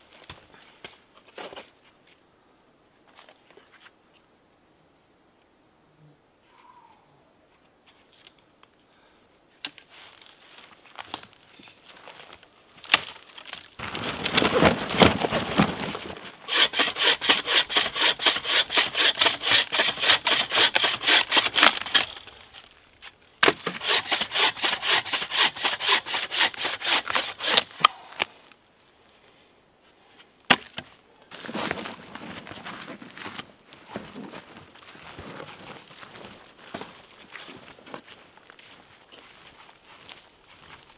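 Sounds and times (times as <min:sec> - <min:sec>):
dry wood cracking and splintering: 0:11.0 - 0:22.7
sharp wood crack: 0:12.8 - 0:22.4, 0:23.4 - 0:25.0, 0:30.5 - 0:30.9
bow saw cutting wood: 0:16.4 - 0:22.2, 0:23.4 - 0:28.0.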